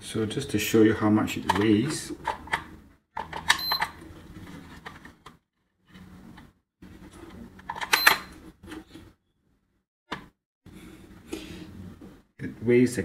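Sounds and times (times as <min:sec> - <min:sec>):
coffee scale beeping: 0:07.9 - 0:08.3.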